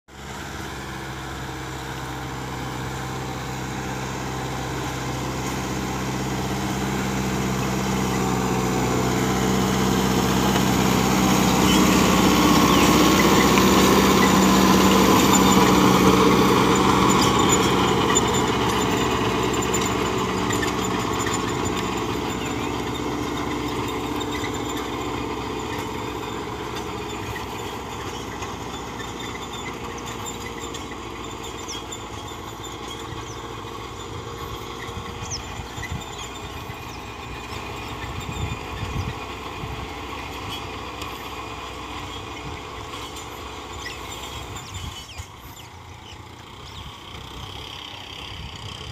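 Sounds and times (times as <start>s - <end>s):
tractor diesel engine under load: 0.0s - 48.9s.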